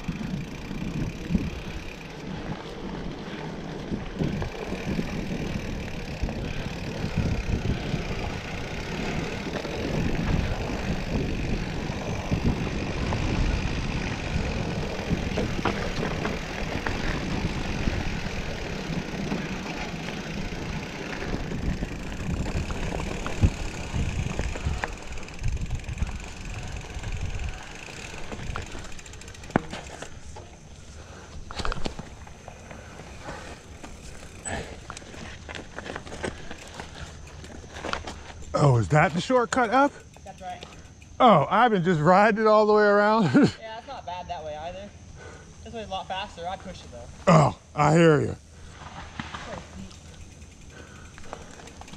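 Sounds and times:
bike clicks and rattles: 0:00.0 - 0:42.4, 0:48.6 - 0:51.9
bicycle tyres rumbling: 0:00.0 - 0:51.9
wind on microphone: 0:03.8 - 0:18.6, 0:21.2 - 0:27.8.

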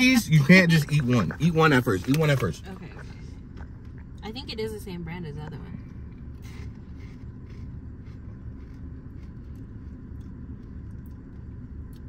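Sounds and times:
car cabin hum: 0:00.0 - 0:12.0
crunchy snack being chewed: 0:06.1 - 0:12.0.

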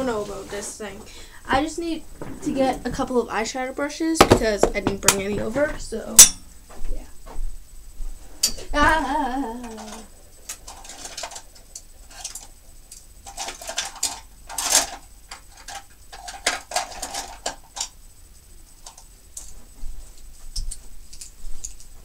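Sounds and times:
small objects clicking and rustling: 0:09.6 - 0:18.0, 0:20.2 - 0:22.0.

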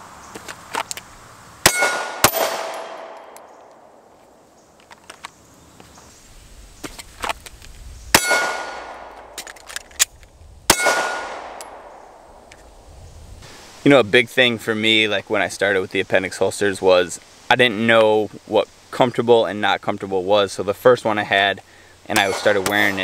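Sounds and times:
pistol shots: 0:01.6 - 0:04.0, 0:08.1 - 0:09.5, 0:10.7 - 0:12.1, 0:22.2 - 0:23.0
steel plate ringing: 0:01.7 - 0:03.0.

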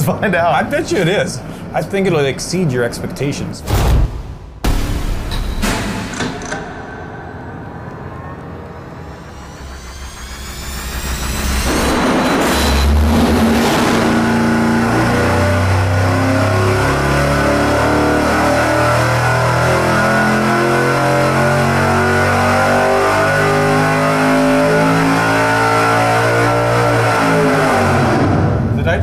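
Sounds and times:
engine revving at full throttle: 0:09.1 - 0:28.7.

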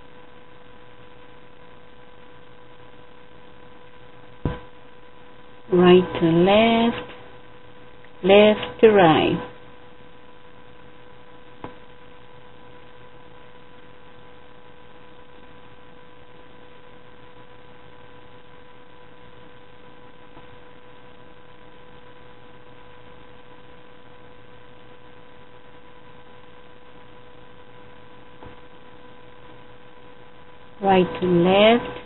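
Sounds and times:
electrical hum with hiss: 0:00.0 - 0:32.0.

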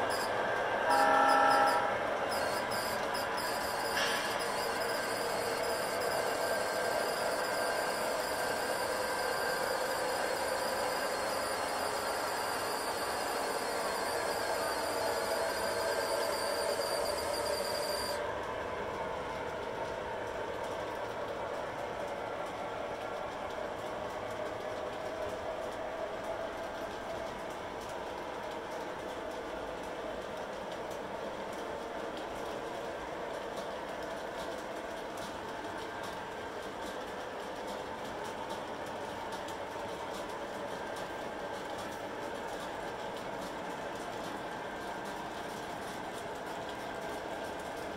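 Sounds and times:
high-pitched whine: 0:00.0 - 0:18.2
locomotive motors humming: 0:00.0 - 0:18.3
model train whirring: 0:00.0 - 0:20.4.

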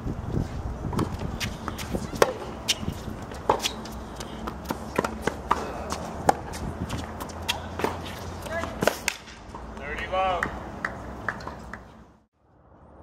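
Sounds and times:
tennis ball struck and bouncing: 0:00.9 - 0:09.8.

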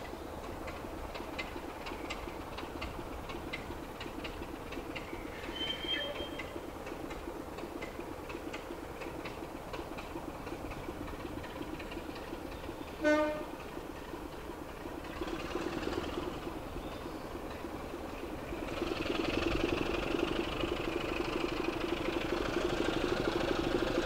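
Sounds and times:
diesel locomotive engine running: 0:00.0 - 0:24.0
short train horn toot: 0:13.0 - 0:13.5.

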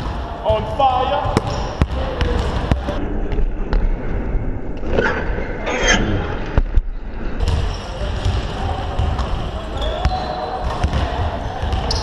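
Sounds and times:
basketballs bouncing on floor: 0:00.0 - 0:03.0, 0:07.4 - 0:12.0.

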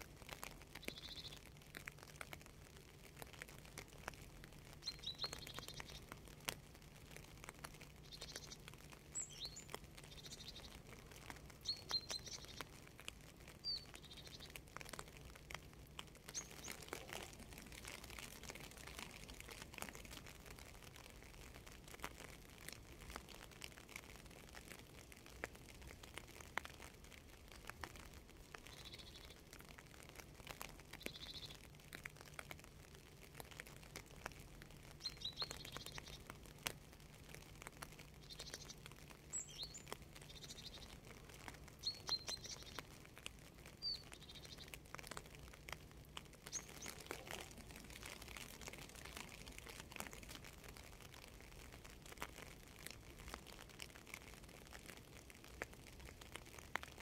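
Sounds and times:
raindrops dripping and pattering: 0:00.0 - 0:57.0
small birds chirping: 0:00.3 - 0:02.4, 0:03.1 - 0:22.0, 0:26.6 - 0:31.7, 0:34.3 - 0:54.1.

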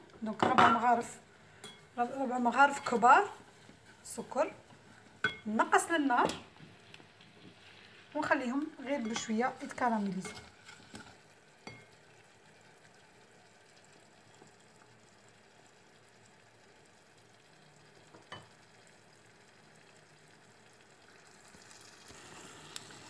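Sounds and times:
onions sizzling in oil: 0:00.0 - 0:23.0
wooden spatula stirring: 0:01.6 - 0:11.3.

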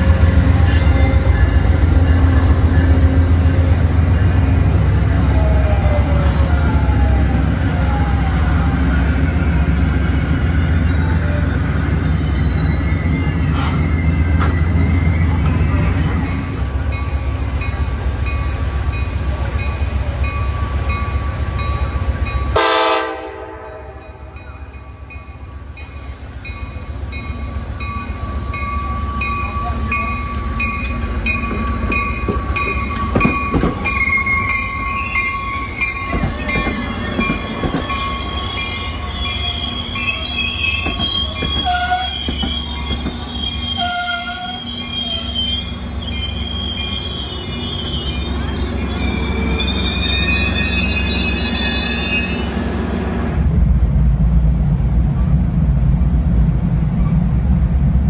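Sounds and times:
train wheels and brakes squealing: 0:00.0 - 0:17.8, 0:24.4 - 0:53.0
train horn toots: 0:22.5 - 0:24.3, 0:43.8 - 0:44.7.

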